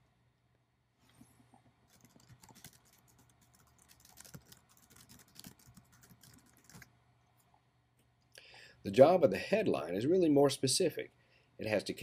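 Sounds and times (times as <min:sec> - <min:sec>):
faint keyboard typing: 0:01.6 - 0:07.6.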